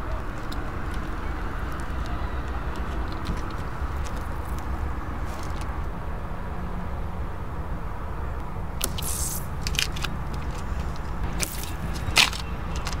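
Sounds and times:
sharp crack: 0:08.8 - 0:13.0.

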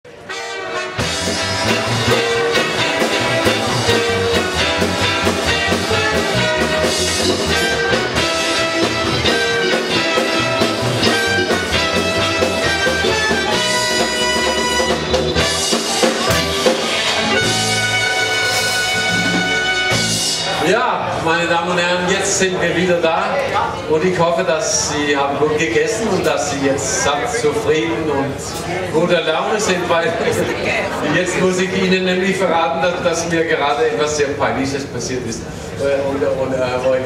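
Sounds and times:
electric guitar: 0:00.1 - 0:20.6
drum kit: 0:00.1 - 0:20.8
electric bass: 0:00.6 - 0:21.1.

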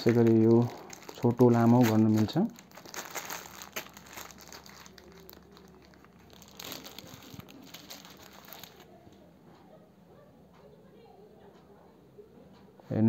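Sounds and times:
plastic wrap crinkling: 0:00.0 - 0:09.0.

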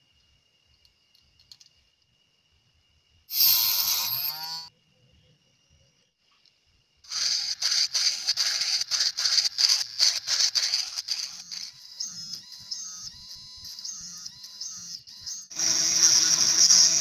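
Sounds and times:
mini grinder grinding plastic: 0:07.1 - 0:12.4, 0:15.5 - 0:17.0.

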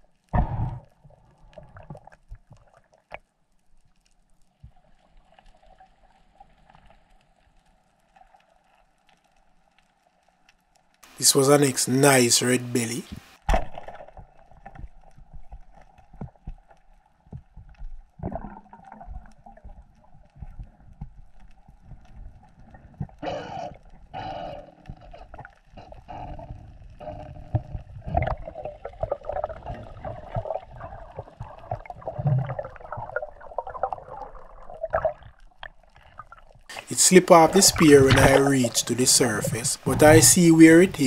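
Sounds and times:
underwater gurgling: 0:00.0 - 0:03.2, 0:17.2 - 0:41.0.

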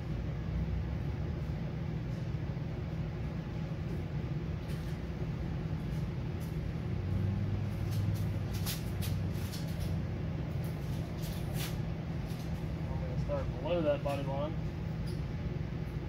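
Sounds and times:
low mechanical hum: 0:00.0 - 0:16.0
high scratchy ticks and rustles: 0:07.7 - 0:12.7.

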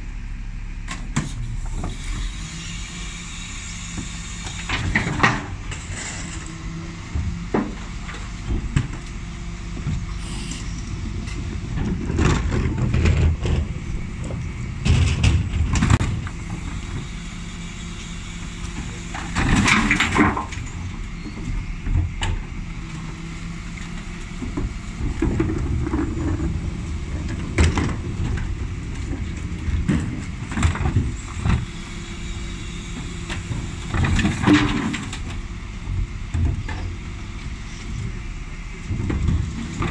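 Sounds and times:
truck engine and hydraulic hum: 0:00.0 - 0:39.9
bins knocking and clattering: 0:11.1 - 0:16.1, 0:24.5 - 0:31.6.

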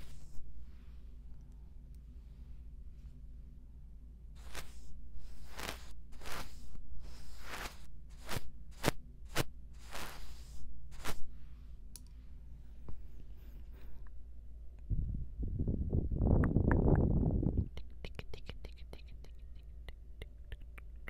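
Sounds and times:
makeup brush swishing on microphone: 0:04.4 - 0:11.3.

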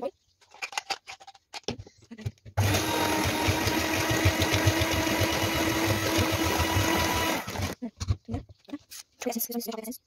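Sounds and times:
electric hand mixer running: 0:02.6 - 0:07.8.

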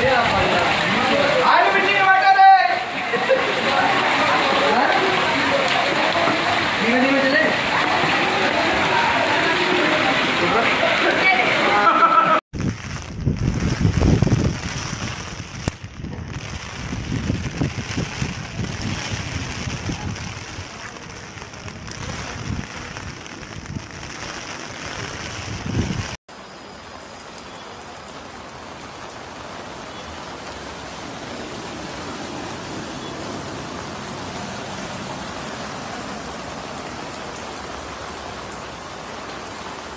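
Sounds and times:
heavy rain on street: 0:00.0 - 0:39.9
wind buffeting microphone: 0:12.6 - 0:26.2.

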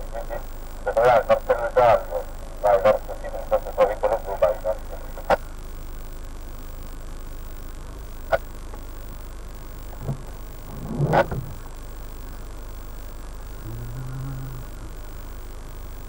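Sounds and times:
low hum inside car cabin: 0:00.0 - 0:16.0
low knock: 0:10.0 - 0:11.6.

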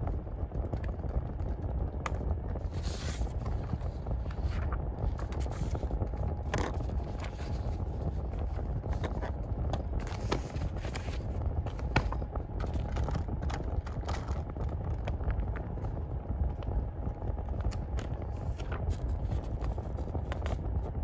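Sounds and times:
steady low rumble: 0:00.0 - 0:21.0
paper rustling: 0:02.6 - 0:14.4, 0:17.7 - 0:20.6.

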